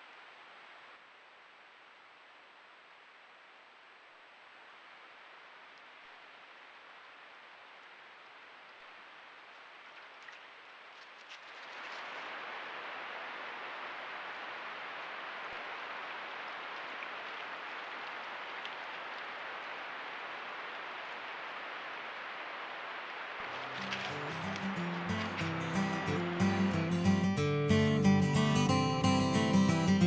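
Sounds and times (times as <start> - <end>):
steady hiss of water: 0.0 - 29.6
faint clicks: 9.5 - 12.2, 16.4 - 19.4.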